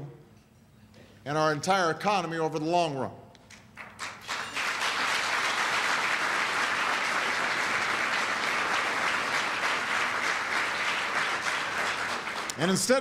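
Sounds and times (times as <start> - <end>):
audience applauding: 3.8 - 13.0.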